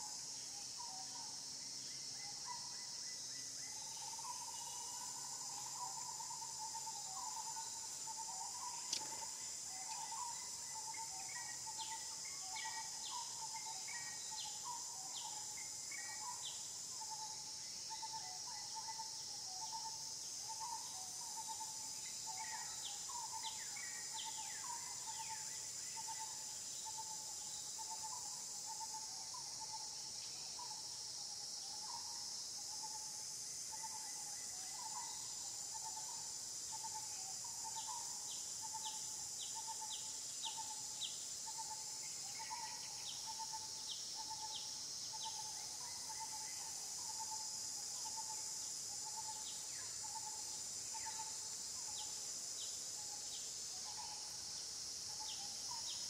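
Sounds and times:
high-pitched insect drone: 0.0s - 56.0s
repeating short insect call: 0.0s - 56.0s
quick insect ticks: 8.6s - 10.1s.

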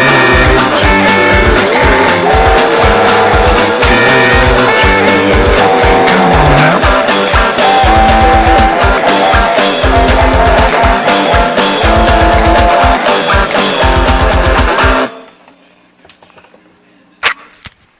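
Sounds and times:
punk rock song with guitar and drums: 0.0s - 15.3s.

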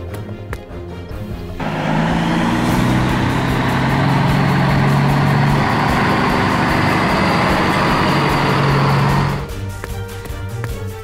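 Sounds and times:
truck engine running: 1.6s - 9.9s.

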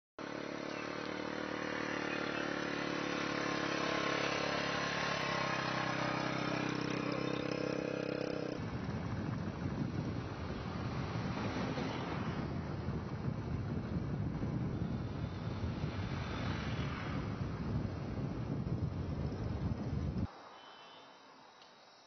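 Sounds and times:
motorcycle engine running: 0.2s - 11.4s
wind and road noise: 0.2s - 20.5s.

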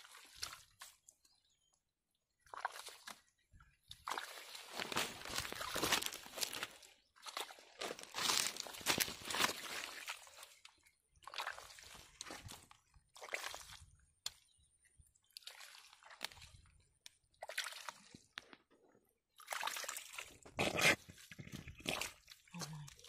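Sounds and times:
hand squelching in wet mud: 0.0s - 1.2s, 2.4s - 14.4s.

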